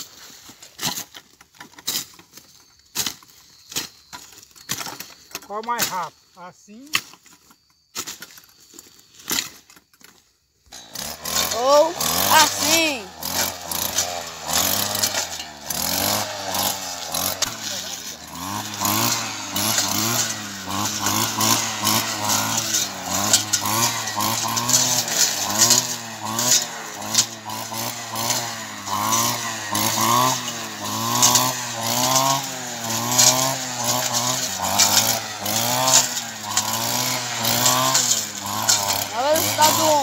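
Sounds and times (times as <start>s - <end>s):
brush cutter engine revving: 10.7s - 40.0s.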